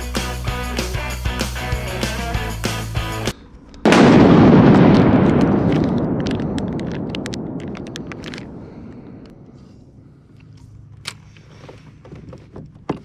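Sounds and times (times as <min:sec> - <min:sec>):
sharp crackles: 0:03.4 - 0:09.6
explosion boom: 0:03.8 - 0:10.0.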